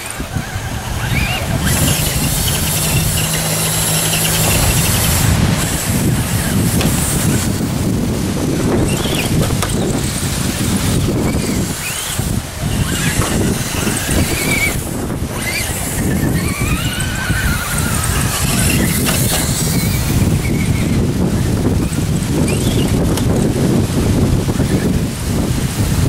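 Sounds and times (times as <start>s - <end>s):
high wavering squeals: 0.0s - 7.9s, 8.7s - 21.0s
wind buffeting microphone: 0.0s - 26.0s.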